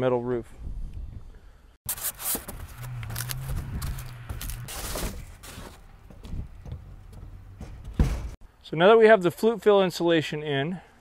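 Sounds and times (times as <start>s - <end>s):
polystyrene boards scraping and knocking: 1.9s - 8.4s.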